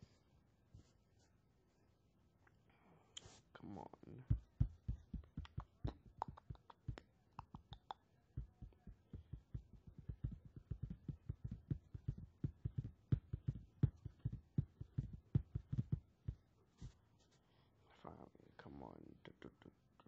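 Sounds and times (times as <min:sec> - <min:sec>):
soft tapping and thumping: 0:04.2 - 0:17.0.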